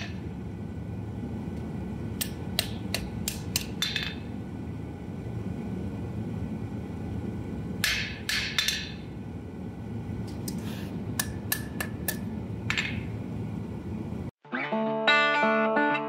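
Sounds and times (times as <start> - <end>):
steady low rumble: 0.0 - 14.3
hammer striking metal on anvil: 2.2 - 4.3, 7.8 - 9.1
guitar music: 14.4 - 16.0.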